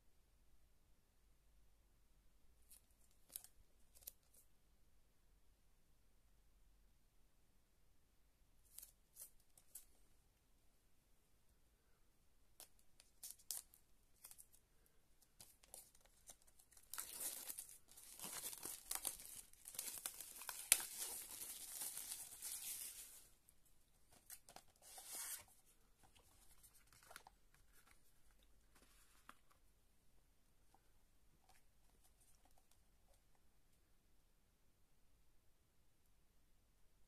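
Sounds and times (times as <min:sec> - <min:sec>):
plastic wrap crinkling: 0:15.4 - 0:23.3.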